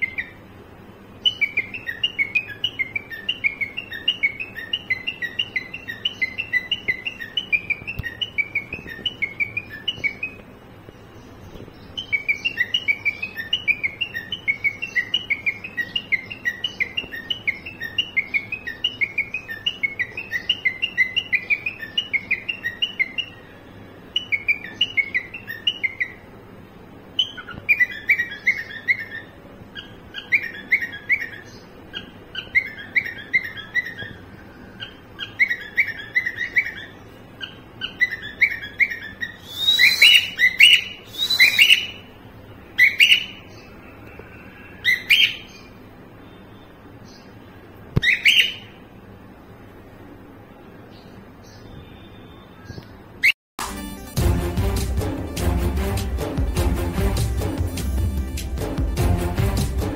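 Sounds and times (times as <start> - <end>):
cockatiel chirping: 0.0 - 0.4, 1.2 - 10.4, 12.0 - 23.5, 24.1 - 26.2, 27.2 - 42.1, 42.8 - 43.5, 44.8 - 45.7, 48.0 - 48.8
harsh bird calls: 0.0 - 53.4.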